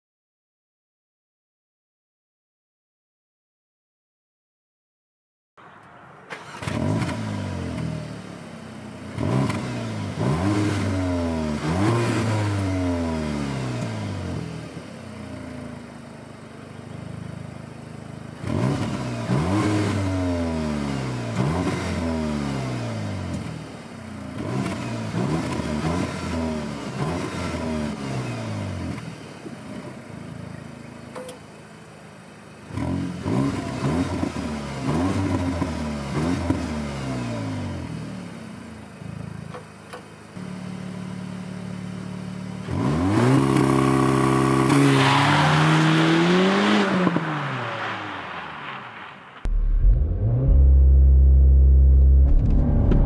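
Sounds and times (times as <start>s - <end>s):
car engine revving: 5.8s - 8.4s, 9.0s - 14.6s, 18.4s - 29.1s, 32.7s - 38.0s, 42.6s - 53.0s
car engine idling: 29.2s - 32.7s, 48.4s - 53.0s.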